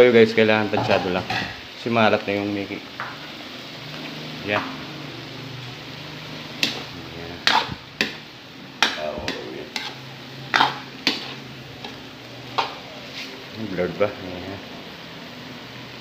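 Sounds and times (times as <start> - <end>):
metal spoon scraping a wok: 6.3 - 13.4.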